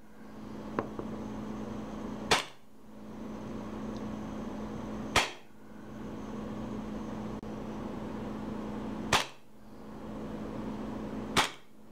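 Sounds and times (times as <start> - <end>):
airsoft pistol shots: 2.3 - 2.6, 5.1 - 5.5, 9.1 - 9.4, 11.3 - 11.7.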